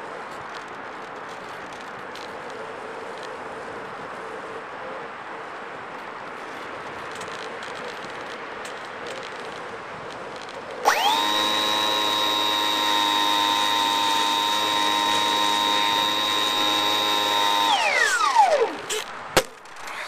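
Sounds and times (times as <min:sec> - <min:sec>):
small high-speed motor whining: 0:10.8 - 0:19.1.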